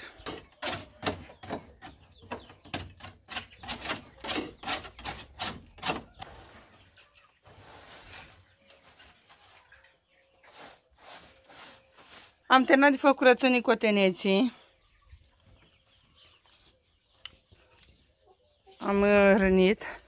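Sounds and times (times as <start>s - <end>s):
broom sweeping wooden floor: 7.5s - 12.5s.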